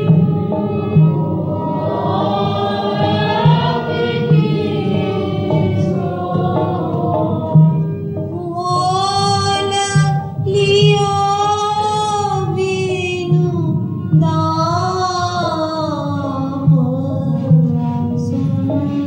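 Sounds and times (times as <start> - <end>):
woman singing devotional song: 8.4 - 19.0.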